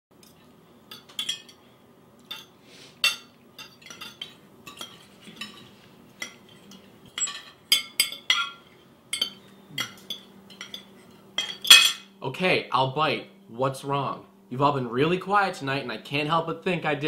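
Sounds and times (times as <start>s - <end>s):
forks clinking on plates: 0.2s - 1.6s, 2.2s - 12.1s.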